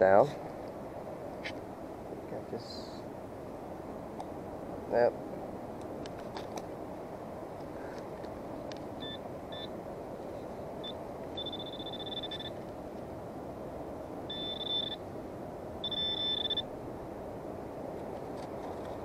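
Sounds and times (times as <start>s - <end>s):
pinpointer beeping: 9.0s - 9.7s, 10.8s - 12.6s, 14.3s - 15.0s, 15.8s - 16.7s.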